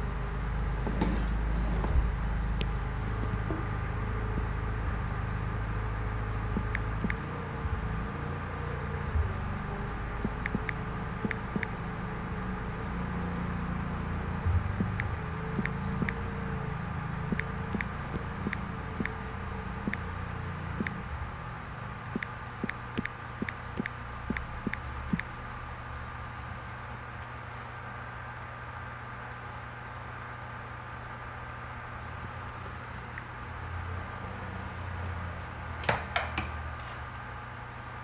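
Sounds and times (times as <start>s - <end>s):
air compressor humming: 0.0s - 27.8s.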